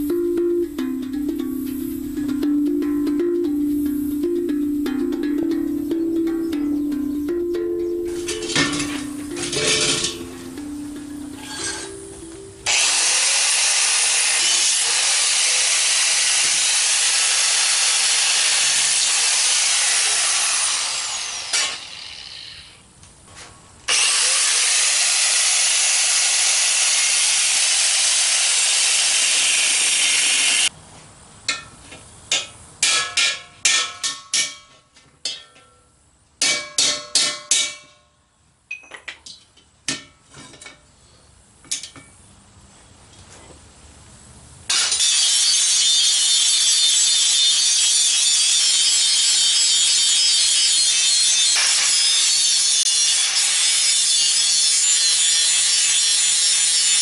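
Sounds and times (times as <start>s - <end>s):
angle grinder cutting steel: 8.1s - 22.8s, 23.9s - 30.7s, 44.7s - 57.0s
hammer tapping metal tank: 32.3s - 35.8s, 36.4s - 38.0s.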